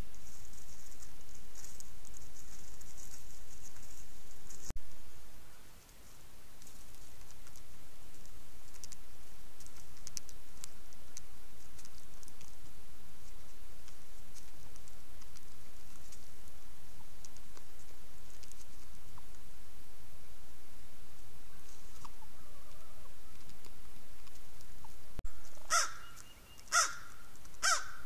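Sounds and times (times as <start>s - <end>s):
turkeys stepping in dry leaves: 0.0s - 4.7s, 5.8s - 19.4s, 21.1s - 28.0s
steady low hum: 0.0s - 28.0s.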